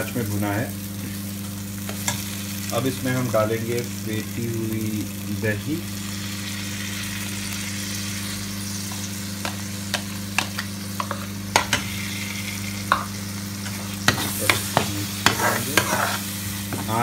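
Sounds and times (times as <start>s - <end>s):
paste sizzling in hot oil: 0.4s - 17.0s
spoon scraping and stirring: 12.9s - 16.3s.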